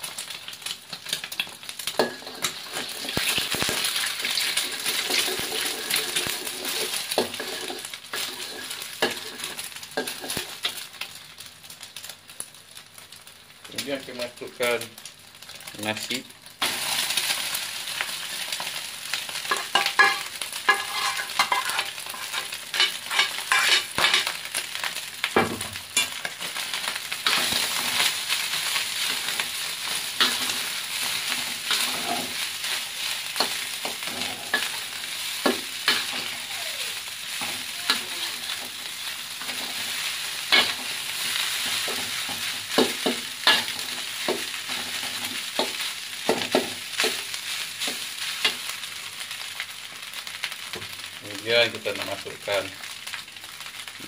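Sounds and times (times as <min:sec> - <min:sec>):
frying sizzle: 0:00.0 - 0:54.0
metal spatula scraping wok: 0:02.0 - 0:10.6, 0:19.5 - 0:24.3, 0:29.0 - 0:36.4, 0:37.3 - 0:48.7.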